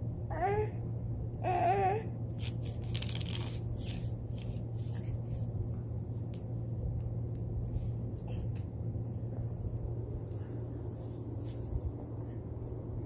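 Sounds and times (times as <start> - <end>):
low background hum: 0.0 - 13.0
baby moving on foam mat: 7.7 - 12.8.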